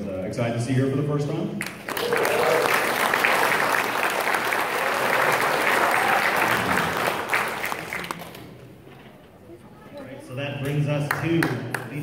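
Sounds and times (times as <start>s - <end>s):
audience applauding: 1.6s - 8.7s.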